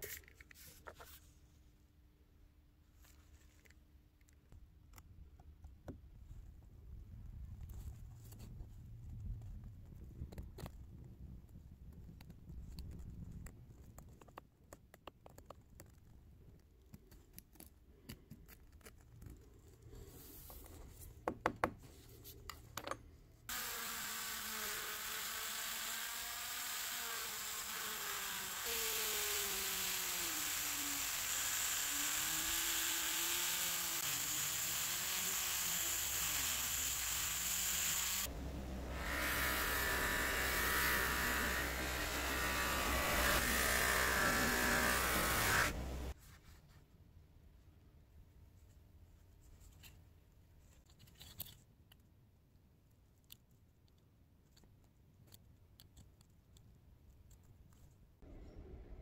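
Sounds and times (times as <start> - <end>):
buffing wheel humming: 23.5 - 46.1
small electric motor buzzing: 23.5 - 46.1.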